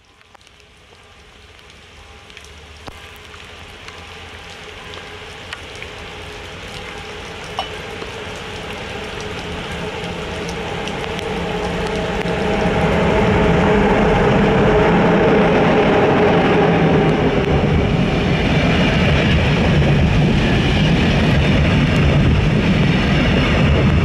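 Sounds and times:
rain falling: 0.0 - 24.0
sharp drips: 0.2 - 13.0
electric train rumbling: 3.8 - 24.0.

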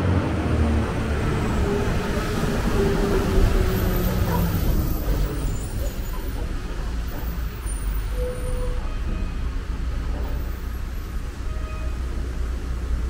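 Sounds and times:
traffic on wet street: 0.0 - 13.0
brief squeal: 7.1 - 9.4, 11.5 - 12.0.

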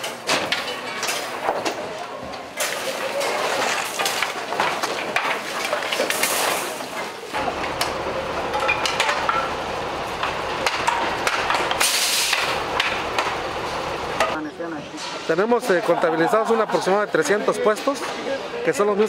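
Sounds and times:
wooden slats knocking and cracking: 0.0 - 1.8, 2.6 - 7.2, 10.2 - 13.4.

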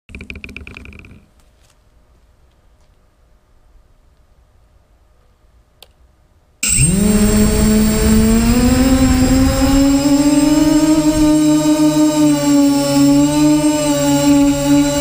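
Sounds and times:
quadcopter motors whining: 6.6 - 15.0.

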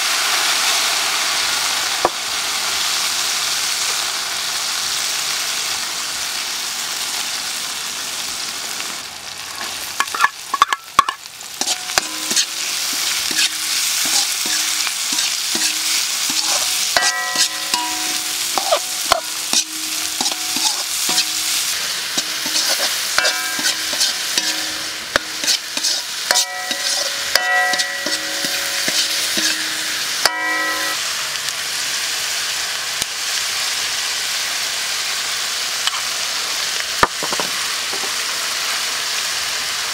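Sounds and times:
vegetables sizzling in hot oil: 0.0 - 39.9
metal spatula scraping wok: 9.6 - 31.0
spatula clinking against wok: 10.0 - 31.0.

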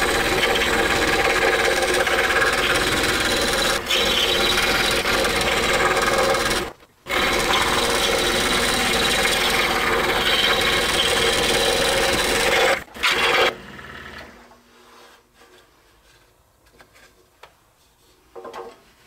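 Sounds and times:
scroll saw cutting wood: 0.0 - 14.4.

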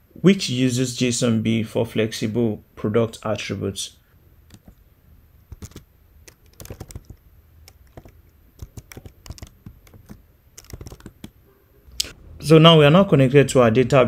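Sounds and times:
keyboard typing: 4.4 - 4.8, 5.5 - 11.4.

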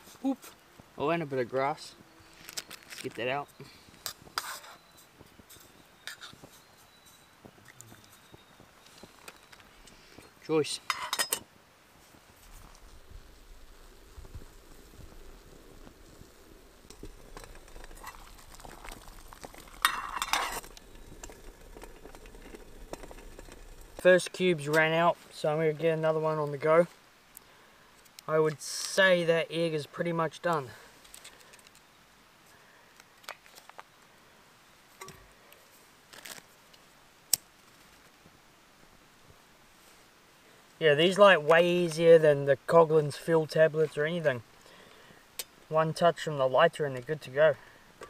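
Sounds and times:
wrapper crinkling: 17.1 - 24.0, 36.1 - 36.5.

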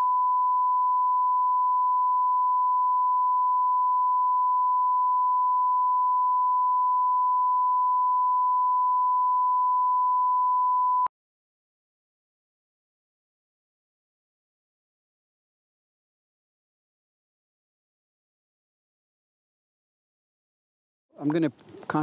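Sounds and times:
steady pure tone beep: 0.0 - 11.1.

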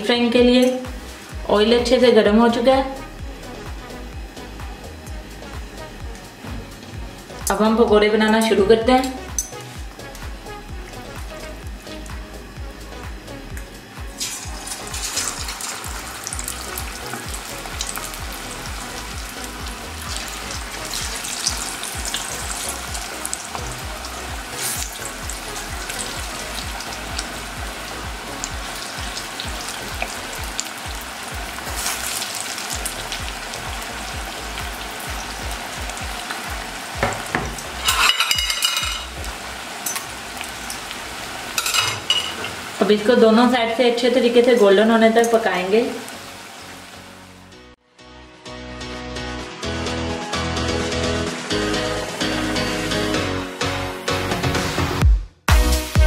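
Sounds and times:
batter sizzling in hot oil: 0.5 - 47.4
metal spoon scraping a pot: 37.8 - 39.2.

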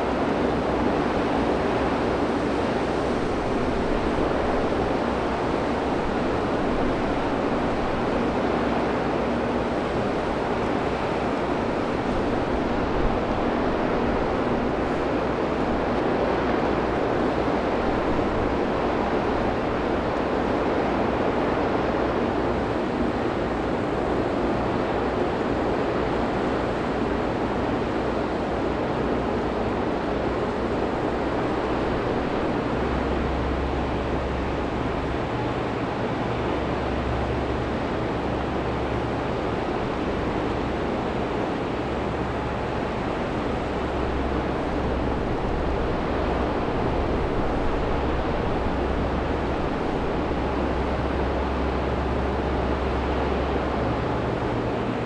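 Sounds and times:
water: 0.0 - 55.0
wind: 0.0 - 55.0
ship engines rumbling: 29.7 - 55.0.

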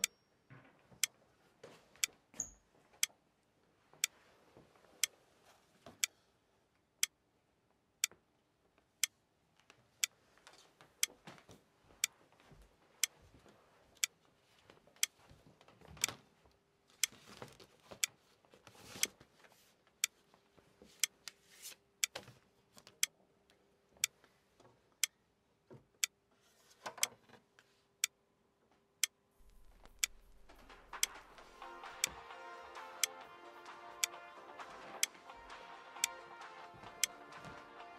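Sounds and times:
clock ticking: 29.0 - 37.9
low hum: 29.4 - 32.1.

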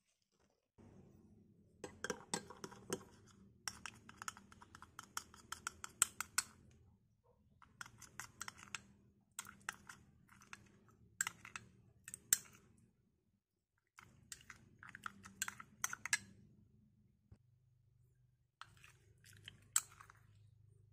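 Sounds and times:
spoon stirring sticky slime: 1.8 - 6.8, 7.6 - 12.8, 13.8 - 16.4, 18.6 - 20.9.

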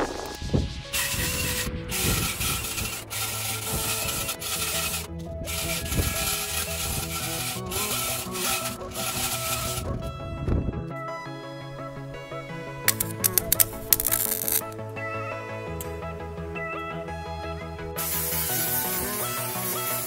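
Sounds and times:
wire brush scrubbing steel: 0.0 - 10.0, 12.9 - 14.7, 18.0 - 20.0
background music: 0.0 - 20.0.

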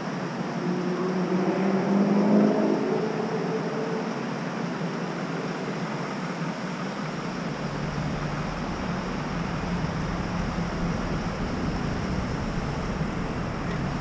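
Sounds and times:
low rumble and hiss: 0.0 - 14.0
low hum: 6.8 - 14.0.

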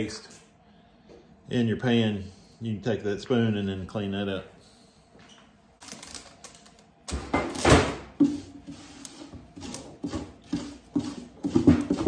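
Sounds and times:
spoon scraping a pot: 8.2 - 12.0.

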